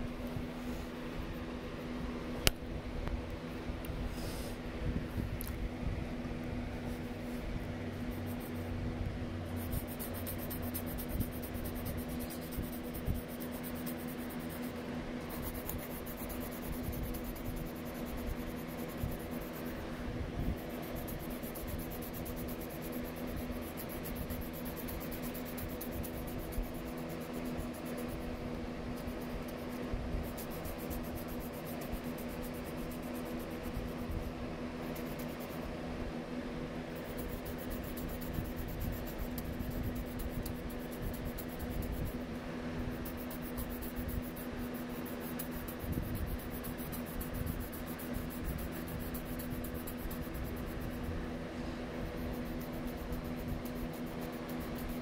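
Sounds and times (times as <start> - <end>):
steady low hum: 0.0 - 55.0
pen scratching on paper: 9.4 - 19.8, 20.6 - 28.3, 29.0 - 34.2, 36.9 - 42.2, 42.9 - 51.1, 52.1 - 55.0.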